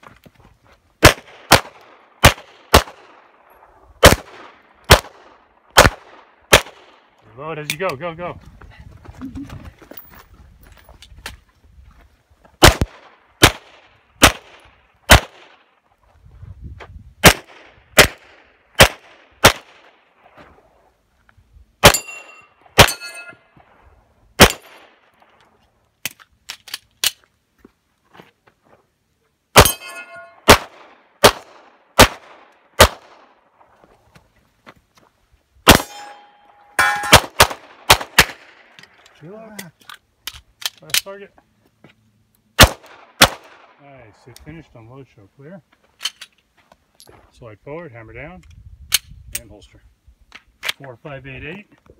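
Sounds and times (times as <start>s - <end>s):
pistol shots: 1.0s - 3.2s, 4.0s - 7.0s, 12.6s - 15.6s, 17.2s - 19.9s, 21.8s - 23.2s, 24.4s - 25.0s, 29.6s - 33.3s, 35.7s - 38.7s, 42.6s - 43.8s
steel targets clanging: 21.9s - 23.5s, 29.6s - 30.4s, 35.7s - 37.2s.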